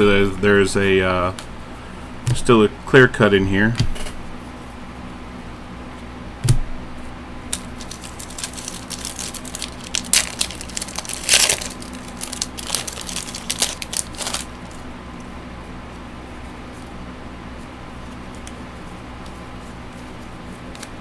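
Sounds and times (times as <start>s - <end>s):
plastic wrapper crinkling: 7.5s - 14.8s
trading cards being shuffled: 7.5s - 14.8s, 19.2s - 21.0s.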